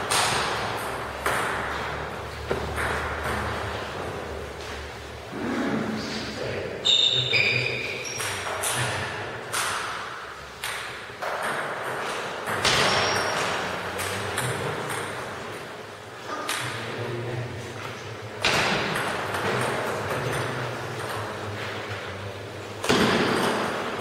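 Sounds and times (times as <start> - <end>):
ball bouncing on table: 0.0 - 1.8, 2.4 - 3.6, 10.6 - 15.3.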